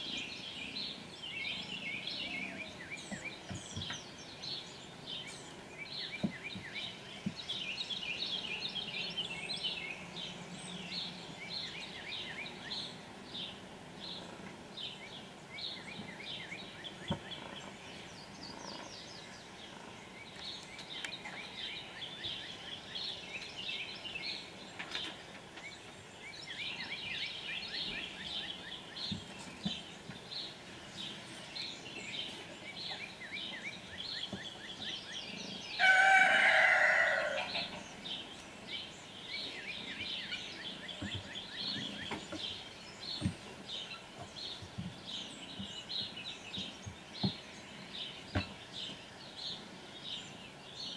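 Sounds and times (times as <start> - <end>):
small birds chirping: 0.0 - 50.9
rooster crowing: 35.8 - 37.7.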